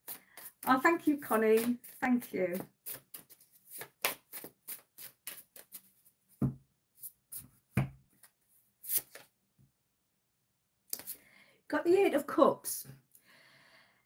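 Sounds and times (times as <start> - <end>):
cards tapping and sliding: 0.0 - 5.9
cards being shuffled: 0.0 - 6.0, 8.1 - 9.3, 11.0 - 11.2.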